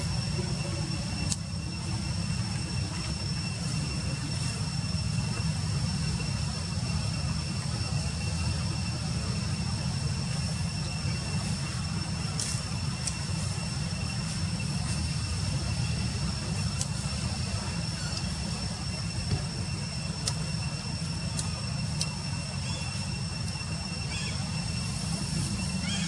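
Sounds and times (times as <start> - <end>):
high-pitched whine: 0.0 - 26.0
faint clicks: 20.2 - 20.5.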